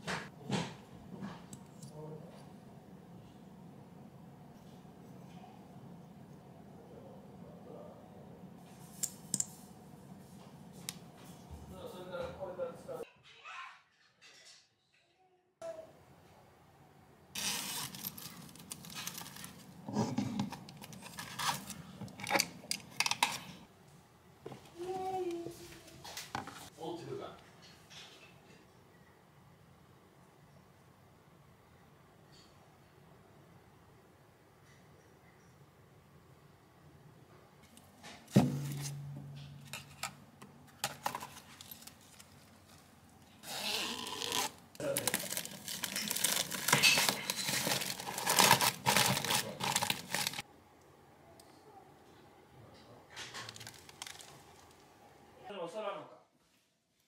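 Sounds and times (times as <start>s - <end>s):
plastic pouch crinkling: 17.4s - 19.8s, 43.4s - 50.4s, 53.4s - 54.8s
low hum: 38.5s - 40.2s.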